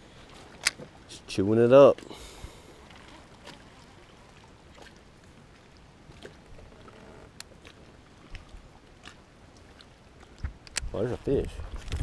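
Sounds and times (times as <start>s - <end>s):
water lapping against boat hull: 0.0s - 12.0s
small sharp clicks: 10.4s - 10.9s.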